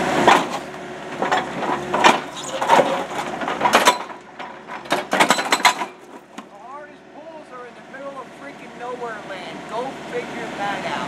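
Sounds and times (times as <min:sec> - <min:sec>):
hydraulic hammer breaking concrete: 0:00.2 - 0:06.0.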